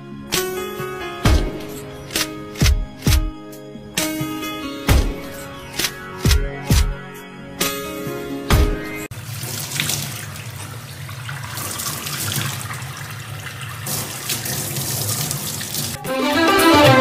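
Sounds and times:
music: 0.0s - 9.1s, 16.0s - 17.0s
faucet water running into sink: 9.1s - 16.0s.

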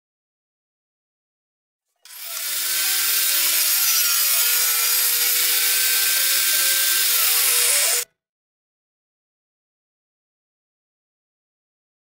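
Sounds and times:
table saw cutting wood: 2.0s - 8.1s.

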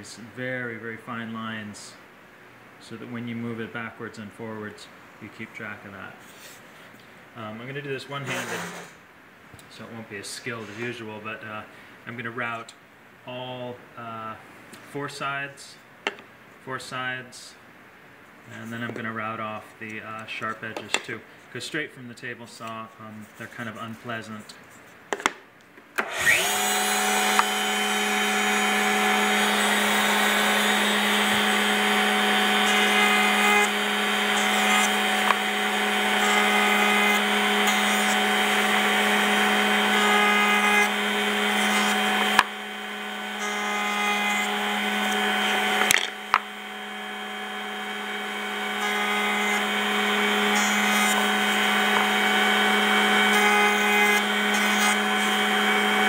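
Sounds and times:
router cutting wood: 26.0s - 56.0s
router running: 26.0s - 56.0s.

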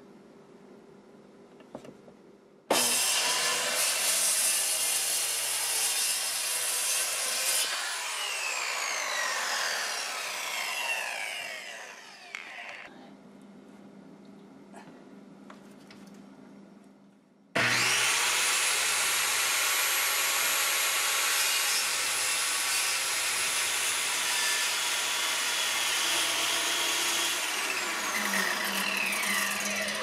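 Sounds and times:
circular saw cutting wood: 2.7s - 12.9s, 17.6s - 30.0s
saw blade winding down: 2.7s - 12.9s, 17.6s - 30.0s.

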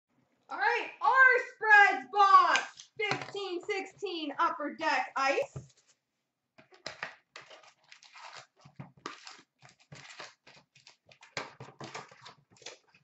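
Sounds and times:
packaging tearing and crinkling: 6.8s - 13.0s.

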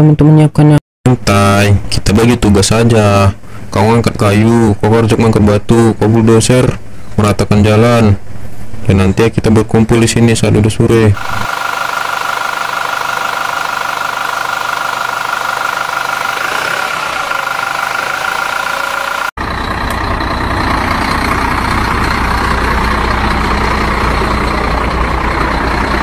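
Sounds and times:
toy truck engine running: 11.2s - 20.6s
engine idling hum: 11.2s - 26.0s.

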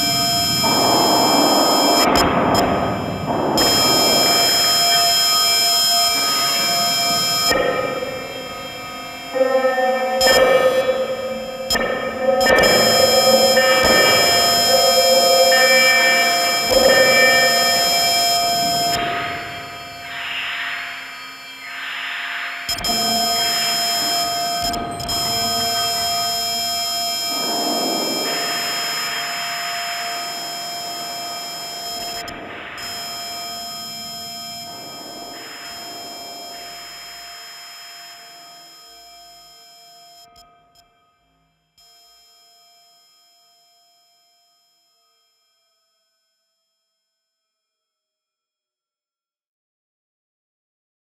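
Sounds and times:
synthesizer drone: 0.0s - 38.3s
crackling noise texture: 0.0s - 38.4s.

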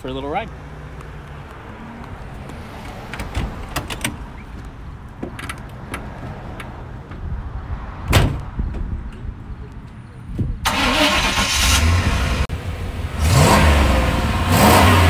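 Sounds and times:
loud thump: 8.1s - 8.9s.

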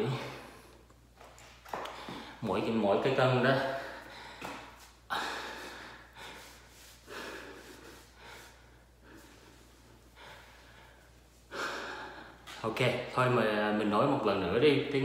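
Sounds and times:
man breathing hard: 1.8s - 2.4s, 3.7s - 12.6s.

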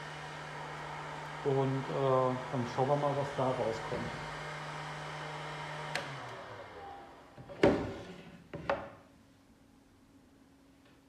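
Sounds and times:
heat gun running: 0.0s - 7.4s.

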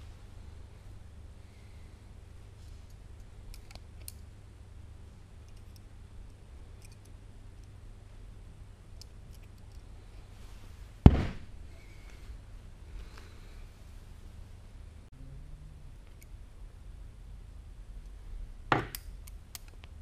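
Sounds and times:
spike thudding into wood: 11.0s - 11.5s.

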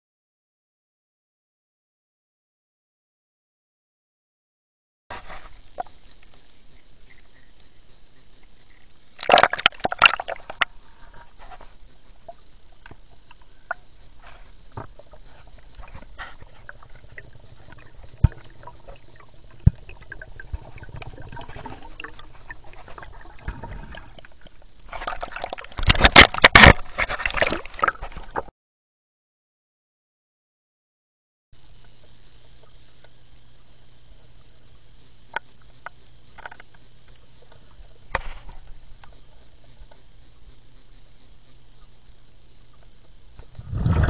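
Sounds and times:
water sloshing and splashing: 9.2s - 10.8s, 14.2s - 28.5s.

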